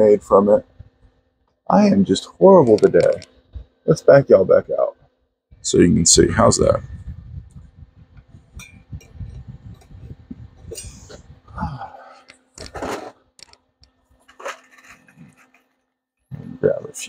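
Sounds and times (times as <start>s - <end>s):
handling noise rubbing: 12.2s - 15.8s.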